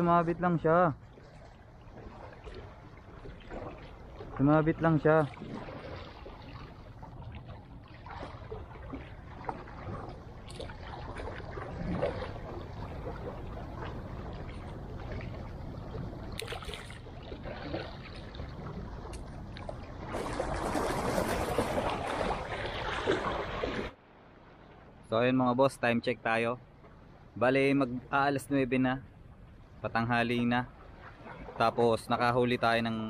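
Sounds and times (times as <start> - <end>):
sea water splashing on rocks: 8.1 - 24.0.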